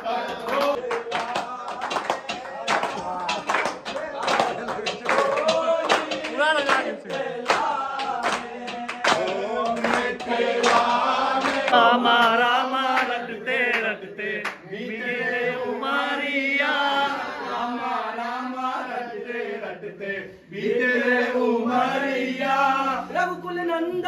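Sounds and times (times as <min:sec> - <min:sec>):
men singing and chanting: 0:00.0 - 0:23.5
sharp percussive hits: 0:00.3 - 0:13.1.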